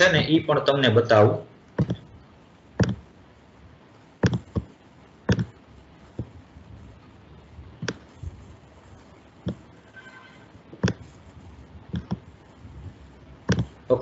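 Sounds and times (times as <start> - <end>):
computer mouse clicks: 7.8 - 8.1, 11.9 - 12.2.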